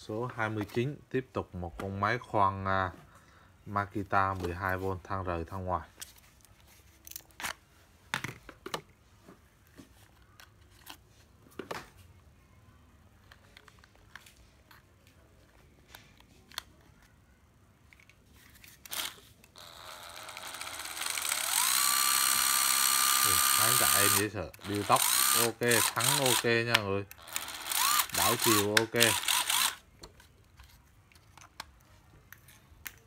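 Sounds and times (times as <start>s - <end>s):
drill being handled clicks: 17.9s - 33.0s
drill motor whining: 18.9s - 26.5s, 27.2s - 29.8s.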